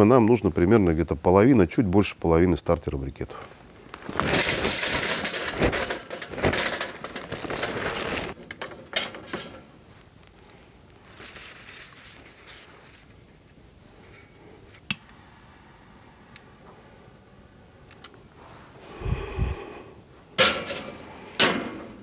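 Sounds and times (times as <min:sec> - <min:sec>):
charcoal clattering into metal chimney: 0:04.0 - 0:09.7, 0:20.4 - 0:22.0.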